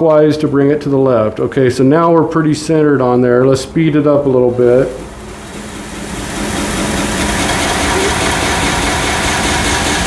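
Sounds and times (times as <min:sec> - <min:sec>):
belt grinder running: 0:04.8 - 0:10.0.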